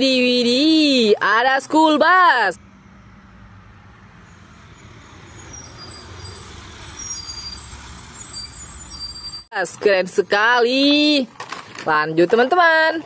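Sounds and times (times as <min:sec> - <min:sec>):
bus engine driving past: 0:02.6 - 0:09.5.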